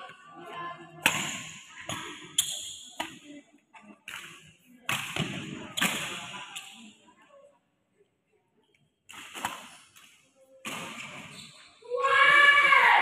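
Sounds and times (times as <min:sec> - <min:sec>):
rackets hitting shuttlecock: 0:01.0 - 0:03.2, 0:04.0 - 0:06.8.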